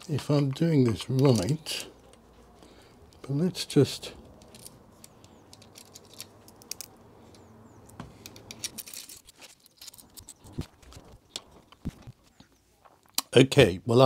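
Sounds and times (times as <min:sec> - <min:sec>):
metal hardware clicks and taps: 0:04.2 - 0:12.0.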